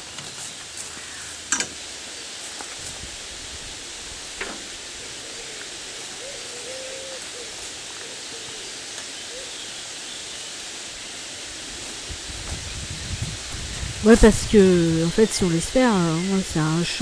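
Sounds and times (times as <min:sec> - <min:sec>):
outdoor hiss: 0:00.0 - 0:17.0.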